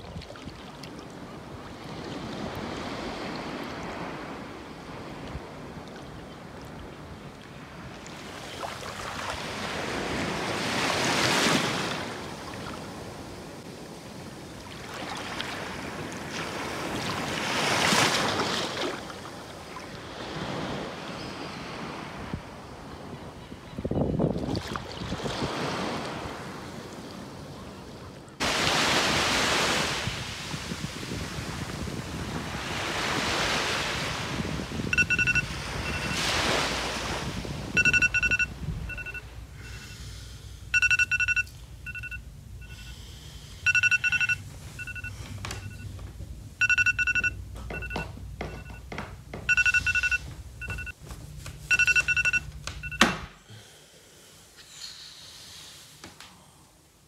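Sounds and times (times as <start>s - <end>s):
sea waves washing: 0.0s - 22.3s, 24.6s - 45.3s
electronic alarm beeping: 34.9s - 36.3s, 37.7s - 40.0s, 40.7s - 42.9s, 43.6s - 45.9s, 46.6s - 48.9s, 49.5s - 51.0s, 51.7s - 53.2s.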